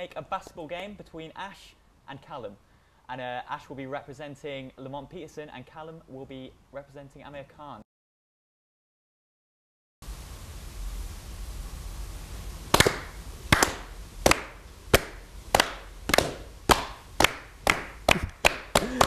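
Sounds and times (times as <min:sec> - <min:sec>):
hand clapping: 0:12.7 - 0:19.0.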